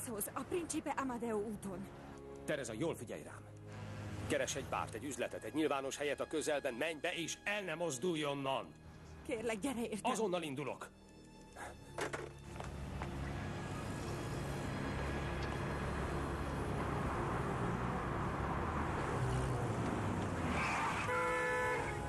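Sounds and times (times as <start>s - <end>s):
cars driving past: 3.6s - 4.8s, 12.4s - 22.0s.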